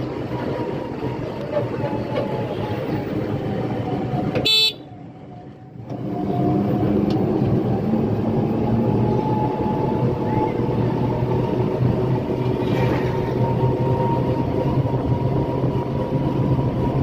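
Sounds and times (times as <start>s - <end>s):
vehicle engine and road noise: 0.0s - 17.0s
car horn toot: 4.4s - 4.8s.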